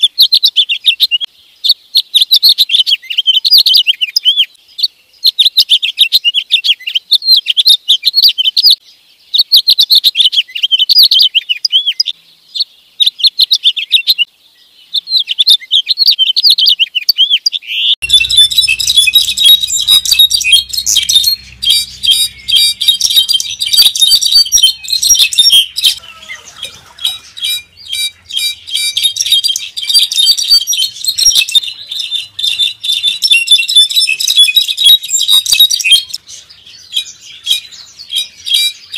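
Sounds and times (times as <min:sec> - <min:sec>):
finch warbling song: 0:17.8 - 0:38.9
faint low hum: 0:18.0 - 0:29.6
bird rapid ringing notes: 0:18.0 - 0:36.2.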